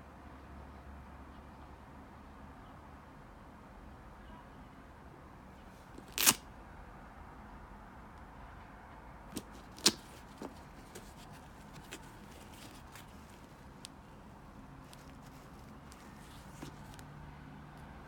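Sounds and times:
quiet handling of sneaker: 0:09.3 - 0:17.2.

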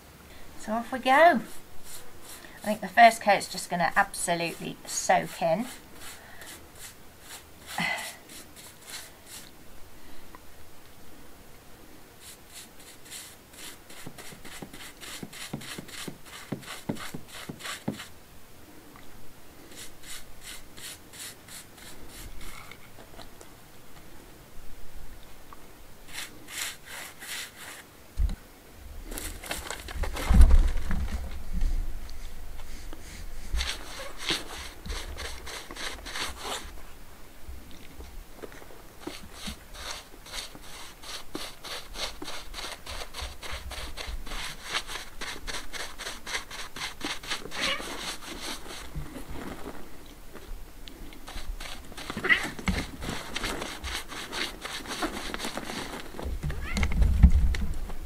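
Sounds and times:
brush scrubbing stone: 0:00.6 - 0:09.6, 0:12.2 - 0:18.2, 0:19.6 - 0:22.7, 0:26.1 - 0:27.9, 0:32.2 - 0:36.8, 0:39.0 - 0:49.9, 0:51.2 - 0:56.2.

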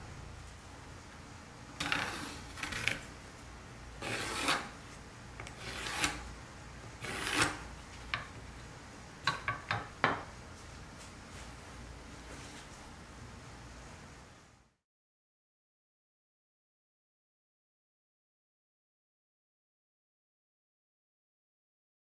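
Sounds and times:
pencil scratching on wood: 0:04.0 - 0:04.7, 0:05.6 - 0:06.2, 0:07.0 - 0:07.6.

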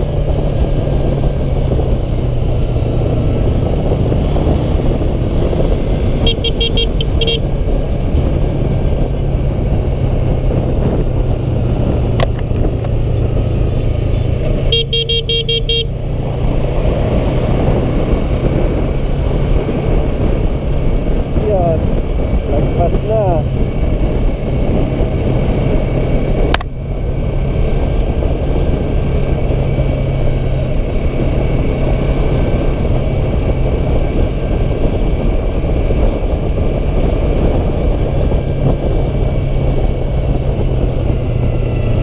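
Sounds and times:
motorcycle engine running: 0:00.0 - 0:42.0
road and wind noise: 0:00.0 - 0:42.0
horn beeping: 0:06.2 - 0:07.6, 0:14.6 - 0:16.1.

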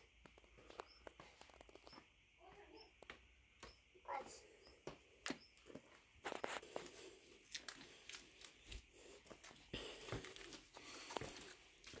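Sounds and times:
footsteps on gravel: 0:04.8 - 0:12.0.

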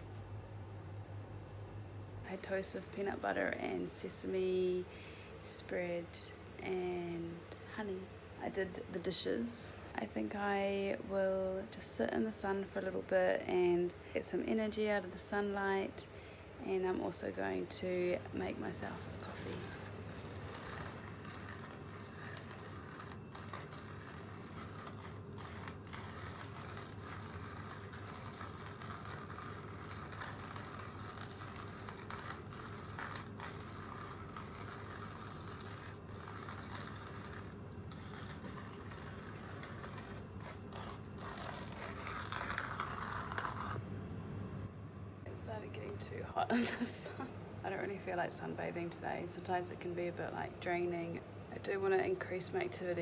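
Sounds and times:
manual coffee grinder grinding: 0:16.9 - 0:43.8.

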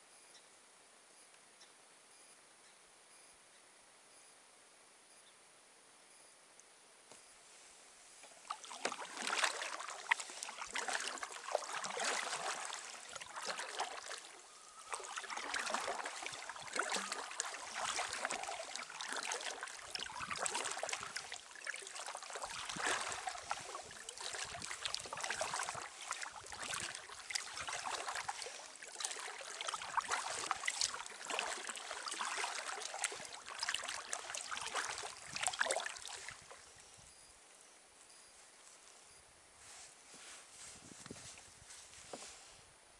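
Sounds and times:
paddle splashing into water: 0:08.2 - 0:36.6
water trickling off paddle: 0:08.2 - 0:36.7.

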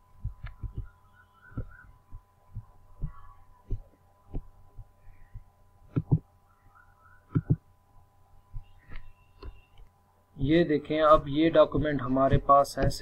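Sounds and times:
soft low thumps: 0:00.0 - 0:06.4, 0:07.3 - 0:09.7, 0:10.9 - 0:13.0
faint steady hum: 0:00.0 - 0:13.0.

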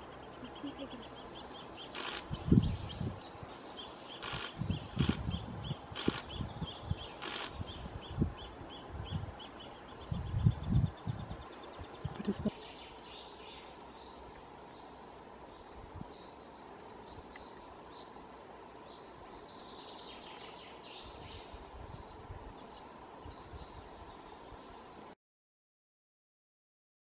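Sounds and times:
nestlings begging calls: 0:00.0 - 0:03.0, 0:03.8 - 0:10.5
distant birdsong: 0:00.0 - 0:25.1.

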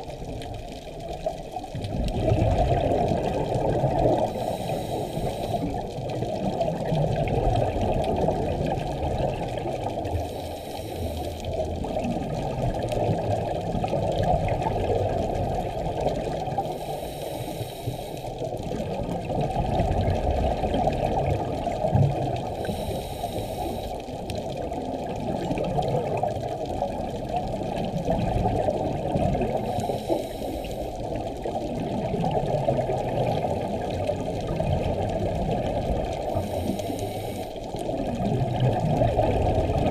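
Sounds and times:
gurgling exhaled bubbles: 0:00.0 - 0:17.2, 0:18.0 - 0:39.9
muffled underwater wash: 0:00.0 - 0:39.9
diver regulator hiss: 0:04.2 - 0:05.8, 0:10.2 - 0:11.5, 0:16.6 - 0:18.4, 0:22.5 - 0:24.1, 0:29.5 - 0:31.1, 0:36.3 - 0:37.8.

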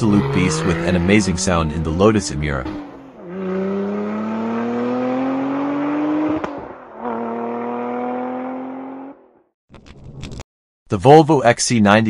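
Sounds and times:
car engine accelerating: 0:00.0 - 0:09.5.

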